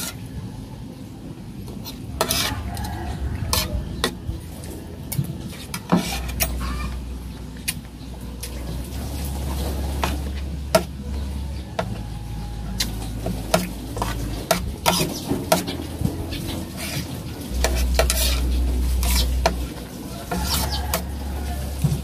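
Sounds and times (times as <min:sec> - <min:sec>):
low rumble: 0:00.4 - 0:20.3
cutlery clinking and scraping on plate: 0:01.8 - 0:04.2, 0:05.1 - 0:06.8, 0:09.5 - 0:11.0, 0:12.8 - 0:22.0.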